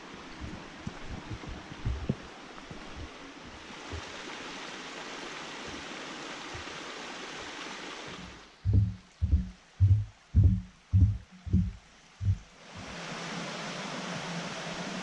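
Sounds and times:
brook water rushing: 0.0 - 15.0
faint low thumps: 0.3 - 3.6, 8.6 - 12.5.

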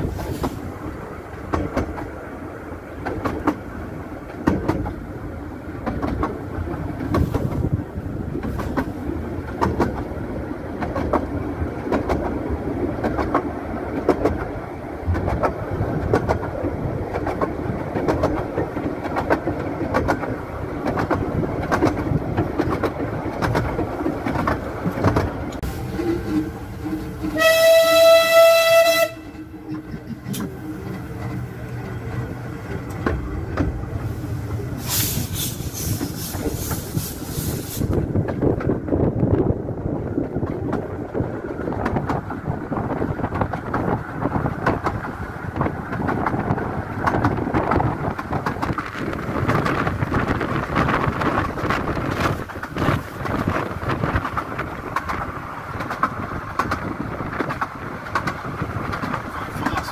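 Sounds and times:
train wheels clicking on rail joints: 0.0 - 59.9
steam whistle: 27.3 - 29.3.

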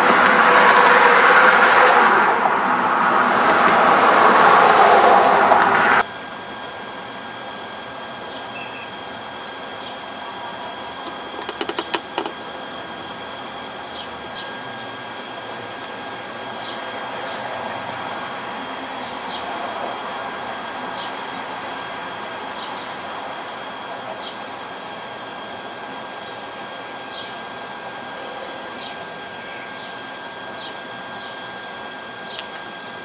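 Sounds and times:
passing vehicle rushing: 0.0 - 6.0
city background hum: 0.0 - 33.0
thin high whine: 0.0 - 33.0.

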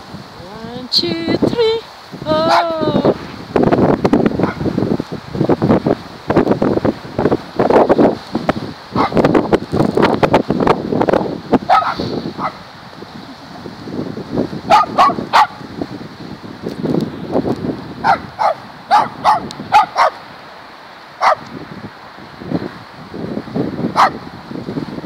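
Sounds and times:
dog barking: 4.4 - 4.6, 9.0 - 9.2, 11.7 - 12.6, 14.7 - 15.6, 18.0 - 20.2, 21.2 - 21.4, 24.0 - 24.2.

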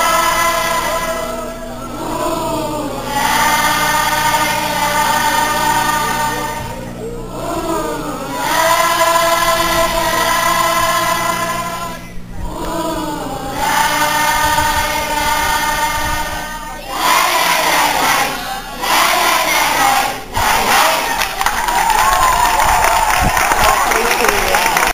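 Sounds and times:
children singing together: 0.0 - 21.7
rough mass of voices: 0.0 - 24.9.

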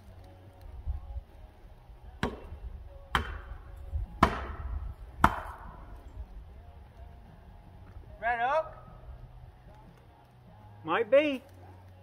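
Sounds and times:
heavy blows on wood echoing: 2.2 - 6.0.

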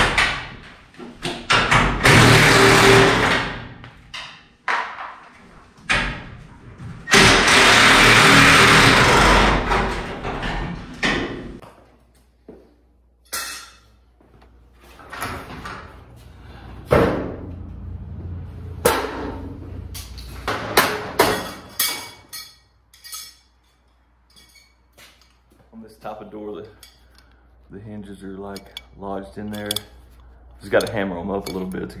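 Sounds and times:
power tool running: 7.1 - 9.7.

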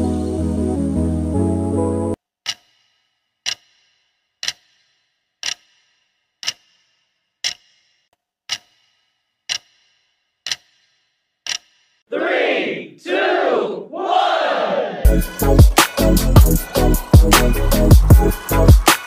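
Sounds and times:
clock-style timer ticks: 2.4 - 12.0
loud shouting: 12.1 - 15.1.

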